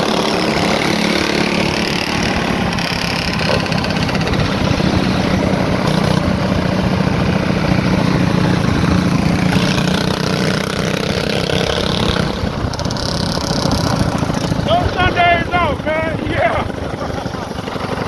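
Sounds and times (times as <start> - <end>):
motorcycle engine running: 0.0 - 18.0
wind noise on microphone: 10.9 - 17.0.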